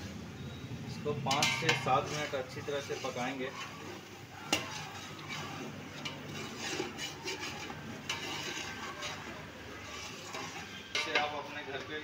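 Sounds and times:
metal ladle scraping pot: 0:01.2 - 0:11.5
ladle clinking on pot: 0:01.3 - 0:02.2.

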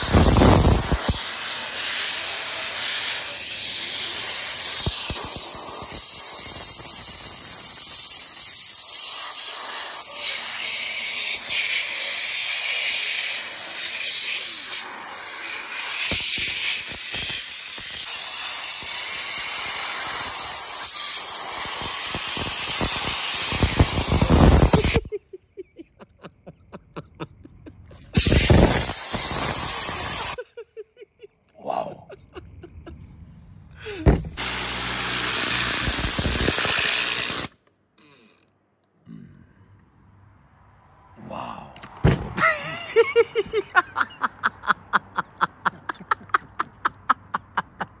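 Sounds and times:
spray gun hissing: 0:00.0 - 0:25.1, 0:28.0 - 0:30.4, 0:34.3 - 0:37.5.

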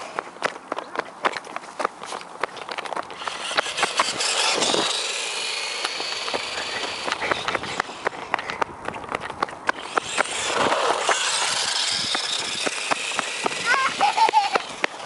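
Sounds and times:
footsteps on gravel: 0:00.0 - 0:15.0
rc truck motor whining: 0:03.2 - 0:08.3, 0:09.7 - 0:15.0.

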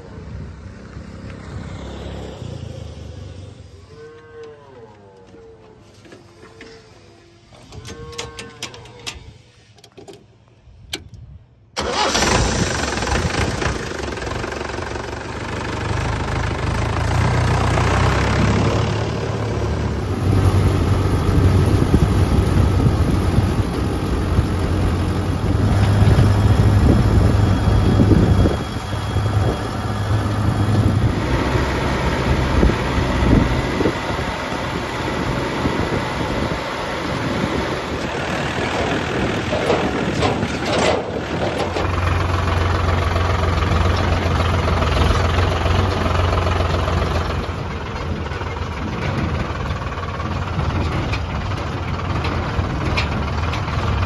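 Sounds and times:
tractor diesel engine running: 0:11.8 - 0:54.0.

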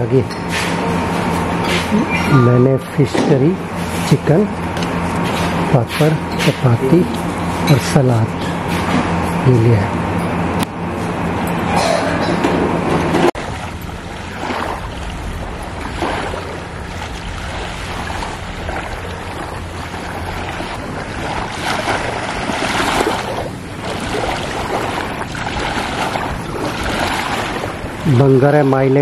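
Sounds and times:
small waves lapping on shore: 0:13.3 - 0:29.0
wind on microphone: 0:13.4 - 0:29.0.

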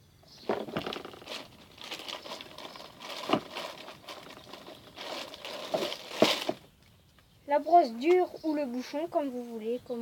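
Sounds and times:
items knocking on plastic: 0:00.4 - 0:06.7
plastic bag crinkling: 0:00.4 - 0:06.7.

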